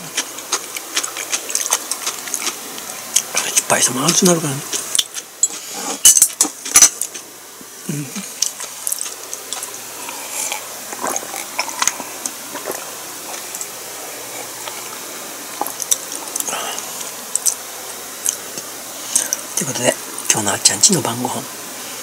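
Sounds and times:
faint steady hiss: 0:00.0 - 0:22.0
person sipping and swallowing: 0:07.8 - 0:17.6, 0:18.2 - 0:19.5.

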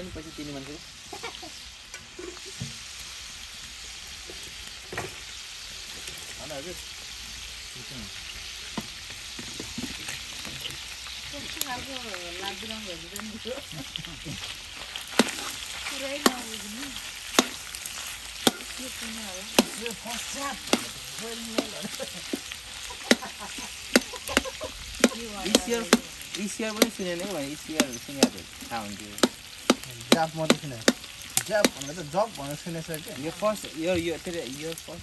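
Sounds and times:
food sizzling in a pan: 0:00.0 - 0:35.0
spoon knocking against pan: 0:17.4 - 0:17.6, 0:19.5 - 0:19.8, 0:23.9 - 0:26.0.

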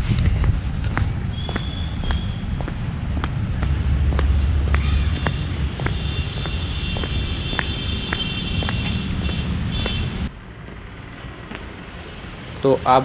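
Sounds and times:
wind rumble on microphone: 0:00.0 - 0:06.1
footsteps on stone paving: 0:00.0 - 0:12.0.

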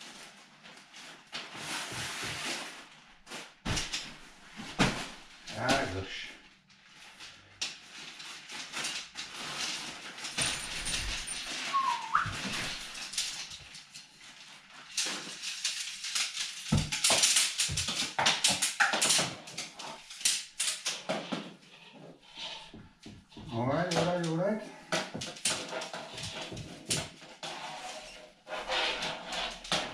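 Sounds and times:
dog whining: 0:11.7 - 0:12.5
tent poles clicking and knocking: 0:14.9 - 0:21.2.

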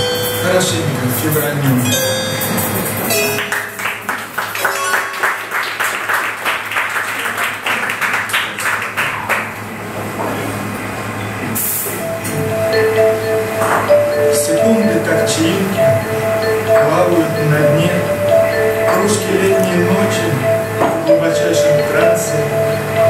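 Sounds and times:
digital piano held notes: 0:00.0 - 0:05.6, 0:11.9 - 0:23.0
audience applauding: 0:03.4 - 0:09.9.

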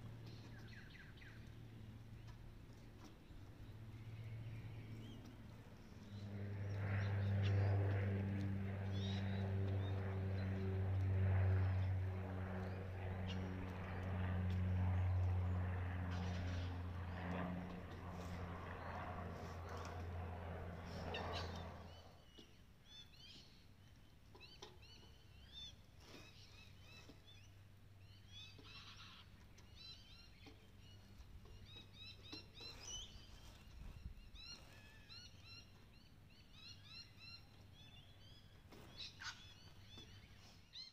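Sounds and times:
motor droning low: 0:00.0 - 0:22.2
low steady hum: 0:00.0 - 0:40.8
small birds chirping: 0:20.8 - 0:40.9.

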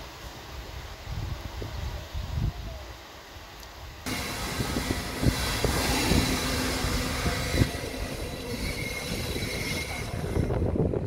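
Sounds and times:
train wheels squealing: 0:04.1 - 0:10.9
train rumbling: 0:04.1 - 0:11.0.

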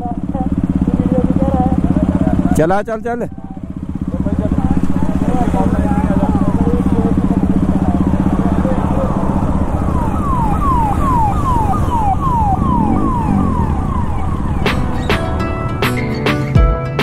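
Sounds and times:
motorcycle engine running: 0:00.0 - 0:16.6
siren whooping: 0:08.1 - 0:15.1.

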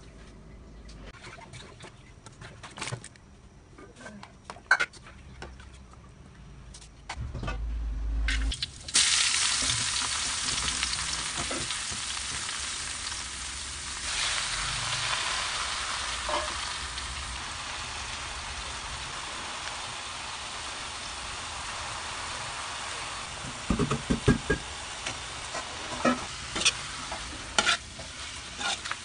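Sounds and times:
food sizzling in hot oil: 0:08.5 - 0:29.0.

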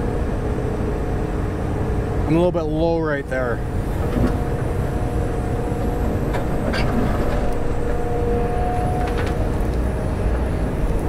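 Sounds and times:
excavator engine and hydraulics: 0:00.0 - 0:11.0
steady whine: 0:00.0 - 0:11.0.

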